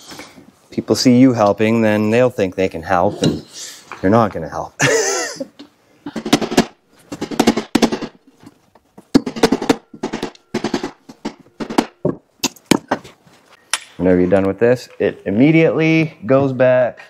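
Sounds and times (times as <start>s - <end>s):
hammer striking steel lacing: 9.1s - 13.0s.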